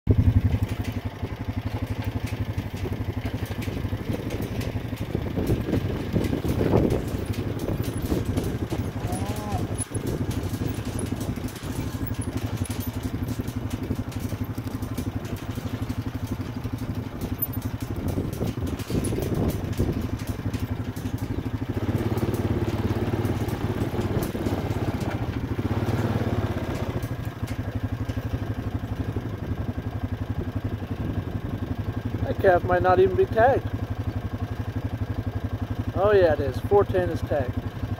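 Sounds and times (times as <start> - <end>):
vehicle engine idling: 0.1 - 37.9
light rattling: 0.2 - 29.4.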